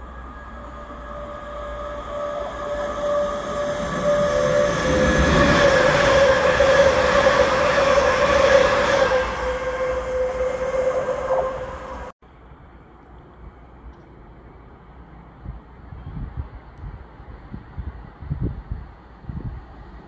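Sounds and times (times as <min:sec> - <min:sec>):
train high whine: 0:00.0 - 0:12.2
train wheels rumbling: 0:00.0 - 0:12.2.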